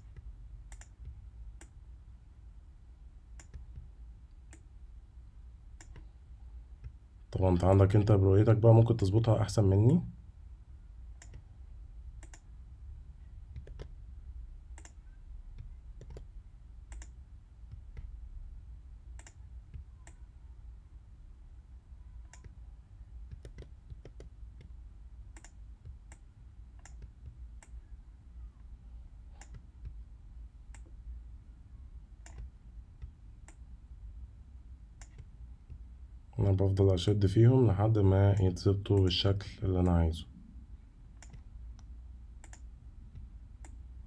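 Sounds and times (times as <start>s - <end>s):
faint mouse clicks: 0.0s - 1.8s, 3.4s - 4.7s, 5.8s - 6.1s, 12.2s - 12.5s, 13.5s - 14.0s, 14.8s - 16.3s, 16.9s - 18.1s, 19.2s - 20.3s, 22.2s - 22.6s, 23.3s - 27.8s, 29.3s - 30.0s, 32.2s - 33.6s, 35.0s - 35.9s, 41.2s - 43.8s.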